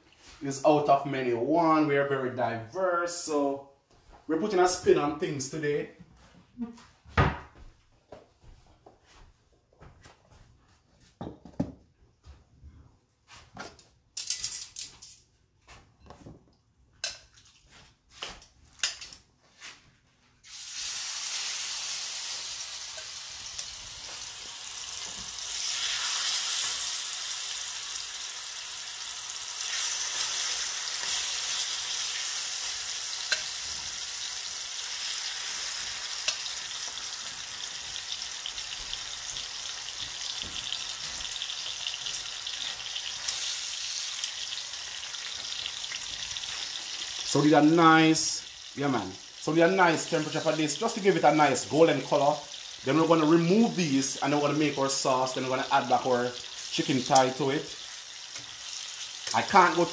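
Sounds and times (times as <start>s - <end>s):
chicken sizzling in oil: 20.4s - 59.9s.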